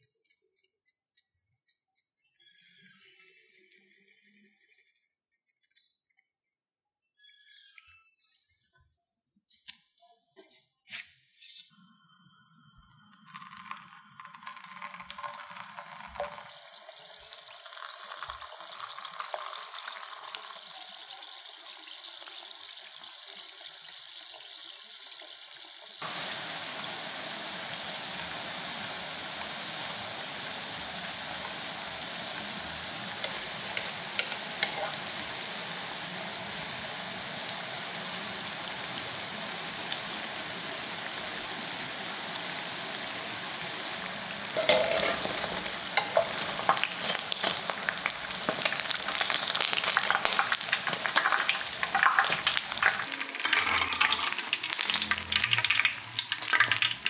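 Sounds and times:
food sizzling in hot oil: 12.9 - 57.0.

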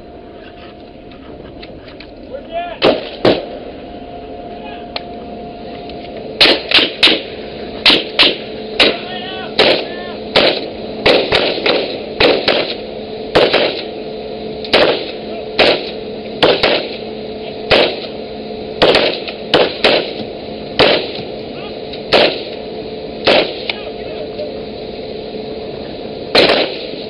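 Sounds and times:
steady hum: 0.0 - 27.0
rifle shots with echo: 2.8 - 3.5, 6.4 - 9.0, 9.6 - 12.8, 13.4 - 13.9, 14.7 - 17.0, 17.7 - 18.1, 18.8 - 20.2, 20.8 - 21.2, 22.1 - 22.5, 23.2 - 23.7, 26.4 - 27.0.

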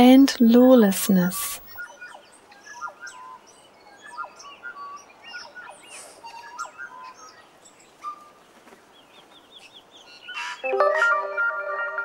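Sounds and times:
birds chirping and whistling: 1.8 - 10.7.

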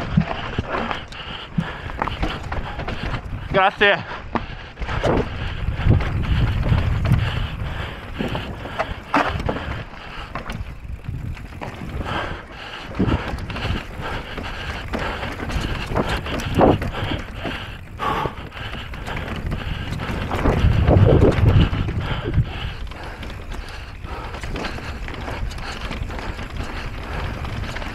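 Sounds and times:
bike rattling: 0.0 - 27.9
wind buffeting microphone: 0.0 - 27.9
tyres rumbling over gravel: 5.9 - 12.3, 13.0 - 27.9.

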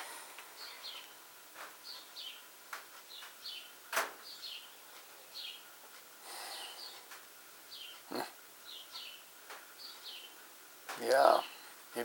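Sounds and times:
bird chirping faintly: 1.8 - 5.7, 7.7 - 11.7.

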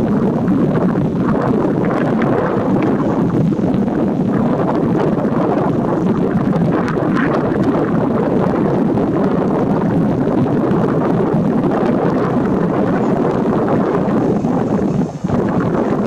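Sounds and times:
wind on microphone: 0.0 - 16.0.

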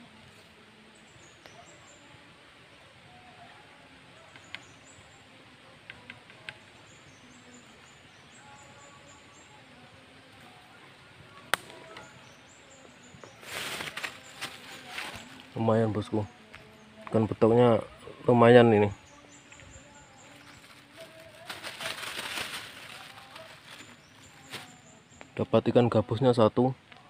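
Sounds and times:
insects chirping: 4.2 - 26.7
rustling and water splashing: 13.4 - 15.6, 20.3 - 24.9.

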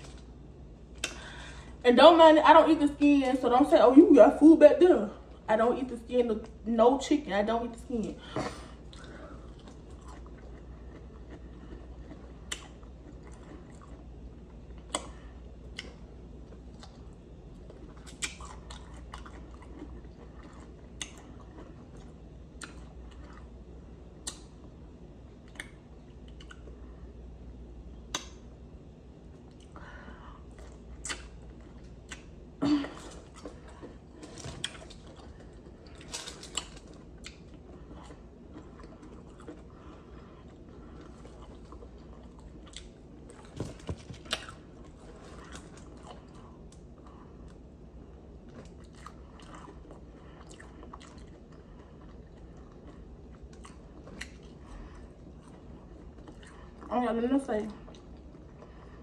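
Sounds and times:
faint low hum: 0.0 - 59.0
crunchy chewing: 8.5 - 26.9, 30.4 - 56.9.

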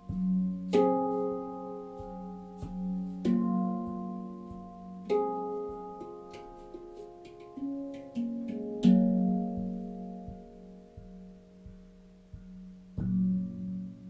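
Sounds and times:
handpan notes ringing: 0.0 - 14.0
steady low tone: 0.0 - 14.0.

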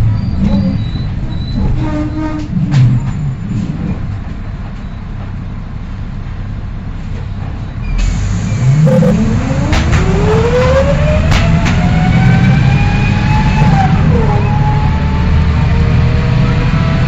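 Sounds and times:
bus engine: 0.0 - 17.0
gearbox whine rising: 7.8 - 17.0.

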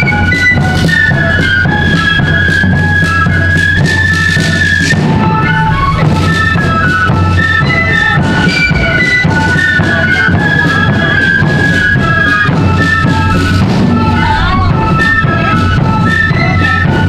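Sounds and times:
flutes playing melody in unison: 0.0 - 17.0
steady drum beat: 0.0 - 17.0.

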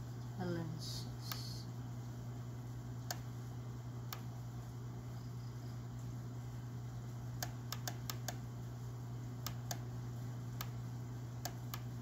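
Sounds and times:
steady low hum: 0.0 - 12.0
laptop clicks: 7.4 - 8.4.

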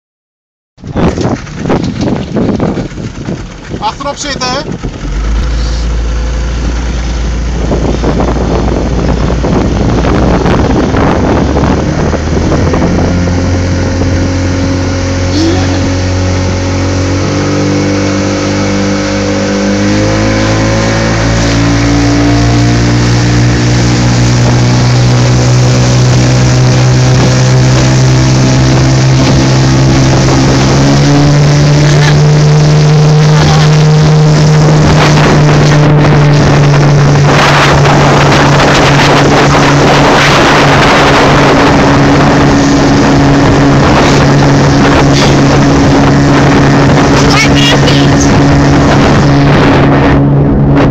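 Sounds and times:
outboard motor speeding up: 0.8 - 50.9
water rushing: 0.8 - 50.9
wind noise: 0.8 - 50.9.

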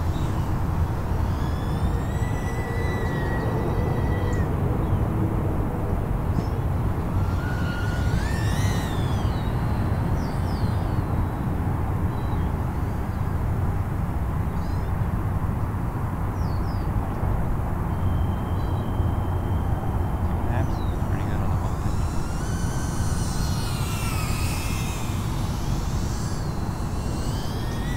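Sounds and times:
drone motors whining: 0.0 - 27.9
bird chirps: 6.4 - 11.5, 17.9 - 27.9.

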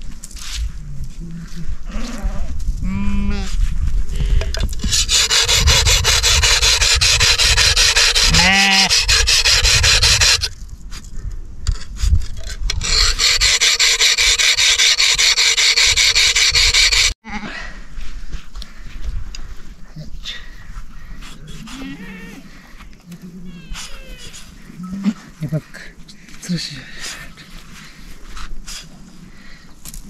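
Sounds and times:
sickle rasping through fleece: 4.8 - 10.5
sheep bleating: 8.3 - 9.0.

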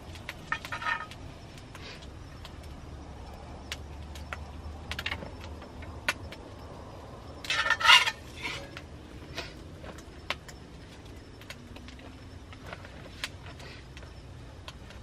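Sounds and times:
wood fire crackling and popping: 0.0 - 15.0
metal utensil scraping in pan: 7.5 - 8.7.

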